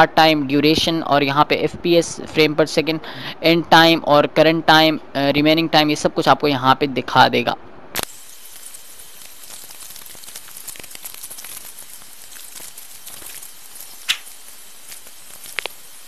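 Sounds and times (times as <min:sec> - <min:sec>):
microphone hiss: 0:00.0 - 0:16.0
faint crackles: 0:08.0 - 0:16.0.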